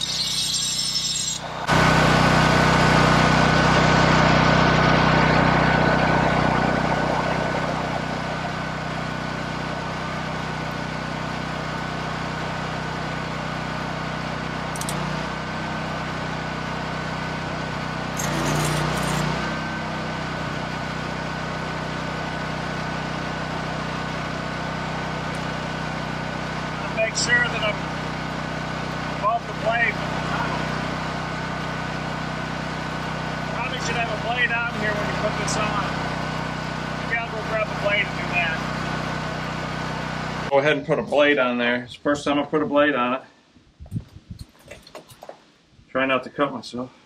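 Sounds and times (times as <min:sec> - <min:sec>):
welding arc hiss: 0:00.0 - 0:01.7
engine-driven welder running: 0:00.0 - 0:40.5.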